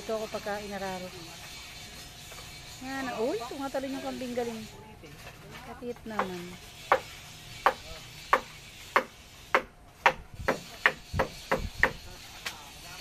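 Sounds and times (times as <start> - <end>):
hammer striking nails: 6.9 - 12.0.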